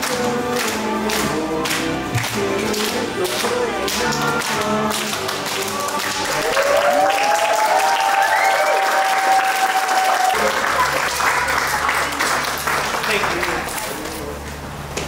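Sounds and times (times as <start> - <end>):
music: 0.0 - 8.8
crowd clapping and cheering: 0.0 - 14.1
long rising whoop: 6.3 - 10.6.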